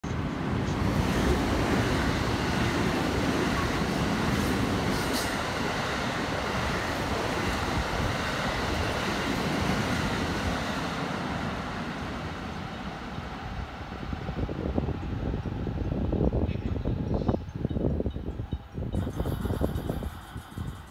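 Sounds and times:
electric train running: 18.9s - 20.9s.

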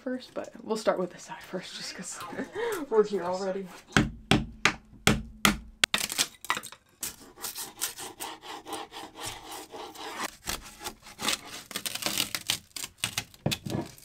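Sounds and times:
sharp knocks on wood: 4.0s - 5.9s
hand scraper scraping wood: 7.0s - 12.6s.

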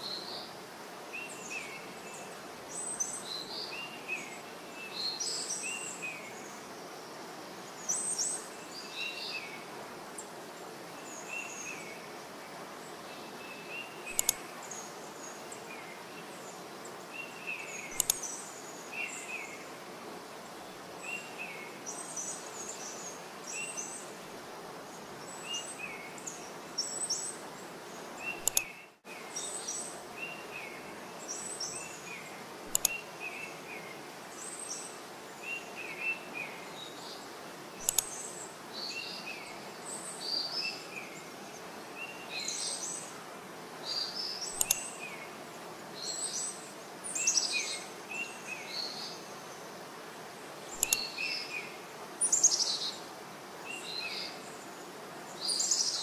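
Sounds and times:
steady background hiss: 0.0s - 56.0s
small birds chirping: 1.1s - 56.0s
sharp clicks: 14.1s - 14.4s, 17.9s - 18.3s, 28.4s - 28.8s, 32.7s - 33.0s, 37.8s - 38.1s, 44.6s - 44.9s, 50.8s - 51.0s.

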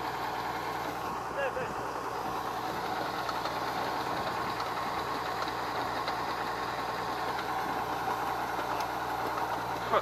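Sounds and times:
farm machinery engine running: 0.0s - 10.0s
light mechanical ticking: 2.7s - 9.8s.

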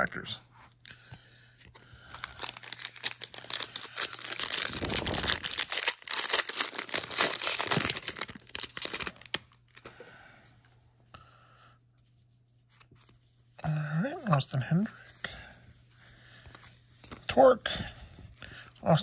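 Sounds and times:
wrapper tearing and crinkling: 2.1s - 9.8s.

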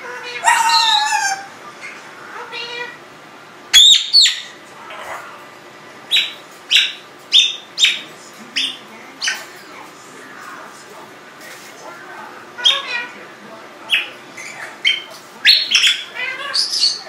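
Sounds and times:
parrot chirping: 0.0s - 3.0s, 3.7s - 5.4s, 6.1s - 9.5s, 12.6s - 13.2s, 13.9s - 17.0s
parrot whistling: 0.2s - 1.5s, 3.7s - 4.6s, 6.1s - 8.0s, 13.9s - 17.0s.

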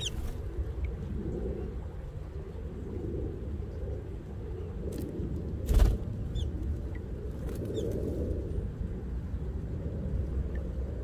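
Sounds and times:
small birds chirping: 0.0s - 0.4s, 5.7s - 8.0s
low outdoor rumble: 0.0s - 11.0s.

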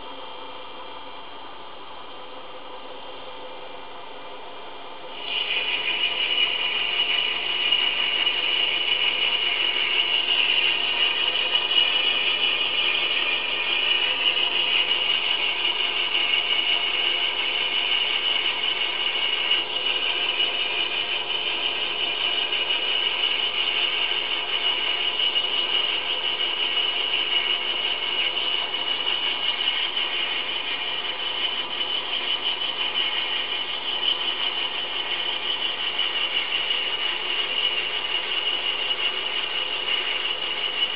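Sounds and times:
lathe motor hum: 5.1s - 40.9s
drill whine boring into brass: 5.2s - 40.9s.

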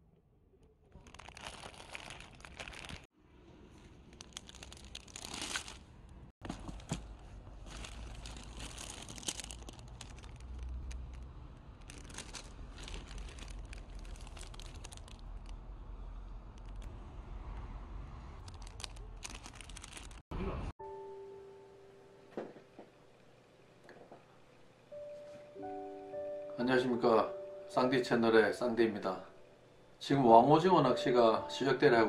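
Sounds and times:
plastic bags crinkling: 0.9s - 3.1s, 4.0s - 6.0s, 6.6s - 15.6s, 18.4s - 20.3s.

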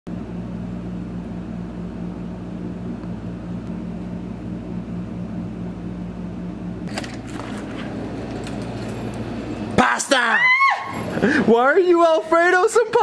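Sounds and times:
low machine hum: 0.1s - 13.0s
short clicks and rustling: 6.9s - 9.2s.

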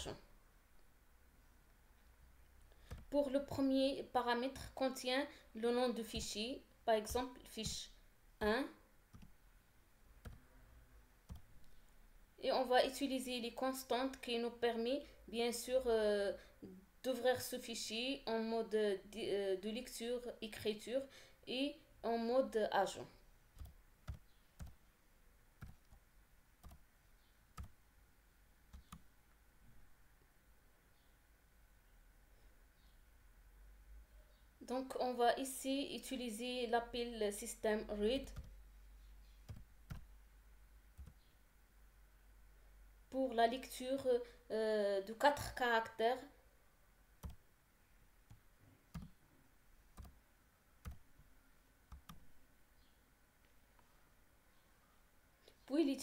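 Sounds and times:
faint keyboard keystrokes: 2.8s - 3.2s.

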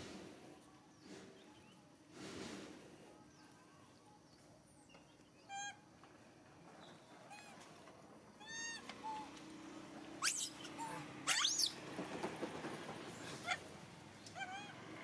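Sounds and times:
monkey squealing: 8.4s - 9.2s, 10.2s - 11.8s
monkey coo calls: 10.2s - 11.8s, 14.4s - 14.8s.

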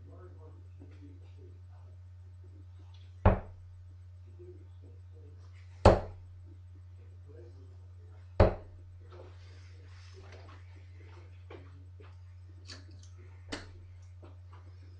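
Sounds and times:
steady low hum: 0.0s - 14.9s
darts thunking into dartboard: 3.3s - 3.7s, 5.9s - 6.3s, 8.4s - 8.8s.

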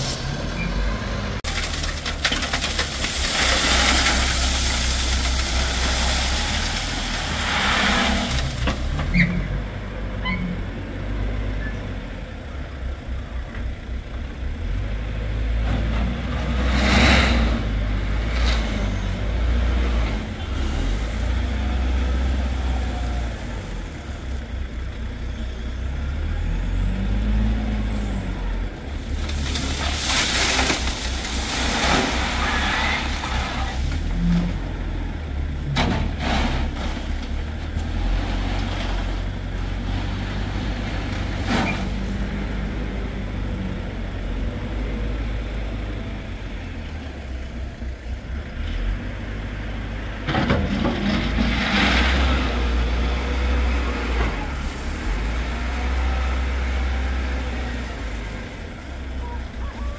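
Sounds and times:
heavy vehicle engine rumbling: 0.0s - 59.9s.

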